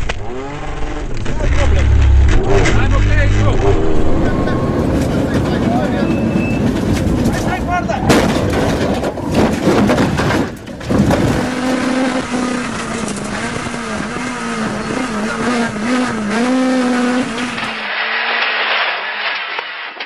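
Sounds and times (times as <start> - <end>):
rally car engine revving: 0.0 - 18.2
rally car crash clattering: 0.0 - 20.0.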